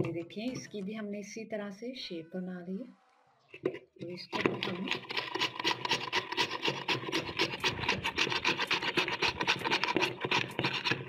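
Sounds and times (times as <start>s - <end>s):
carrot scraping on a grater: 4.3s - 11.0s.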